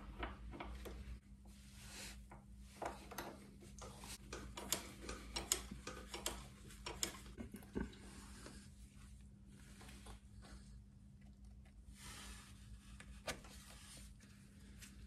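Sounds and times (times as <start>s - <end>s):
light clicks and taps on metal parts: 0.0s - 1.2s, 2.3s - 8.0s.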